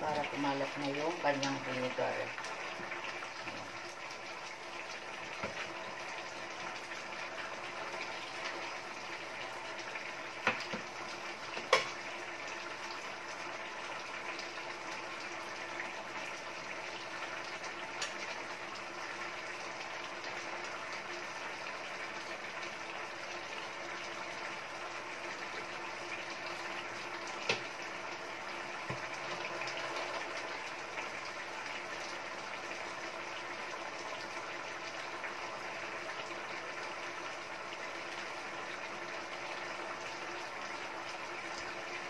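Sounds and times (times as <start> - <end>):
sauce boiling in a skillet: 0.0 - 42.0.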